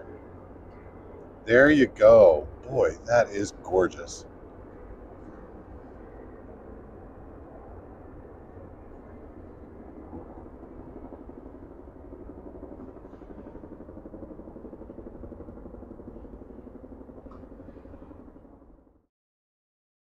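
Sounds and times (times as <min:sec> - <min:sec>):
city traffic rumble: 0:00.0 - 0:10.4.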